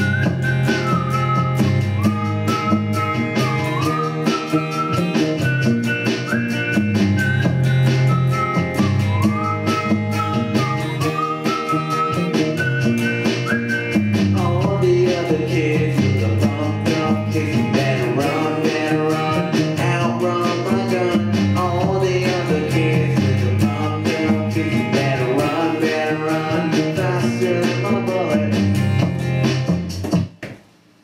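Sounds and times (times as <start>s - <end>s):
electric guitar loop: 0.0s - 30.2s
person singing: 14.3s - 28.8s.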